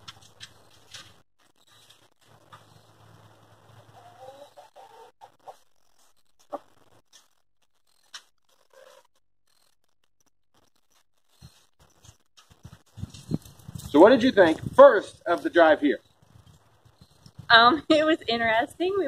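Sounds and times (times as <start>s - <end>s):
chickens clucking: 3.7s - 5.7s.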